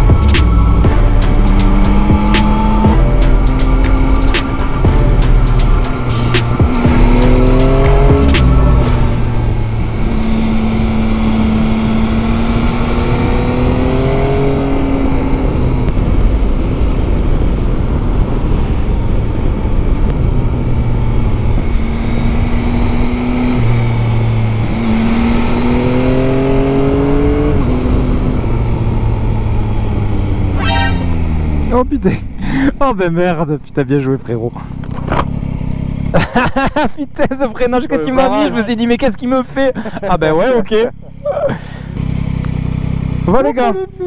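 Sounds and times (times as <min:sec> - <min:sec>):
motorcycle engine accelerating: 0:00.0 - 0:33.7, 0:34.4 - 0:44.0
wind rushing over microphone: 0:14.5 - 0:31.6.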